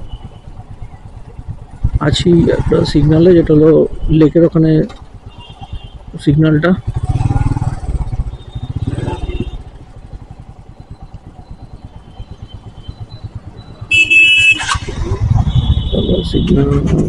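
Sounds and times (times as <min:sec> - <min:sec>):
city traffic: 0:00.0 - 0:17.0
motorcycle engine idling: 0:00.0 - 0:17.0
vehicle horn honking: 0:05.2 - 0:06.1, 0:13.9 - 0:16.8.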